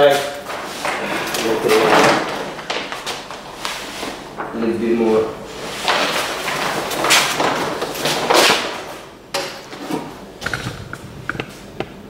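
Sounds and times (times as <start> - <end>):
plastic film rustling and crinkling: 0.4 - 9.1.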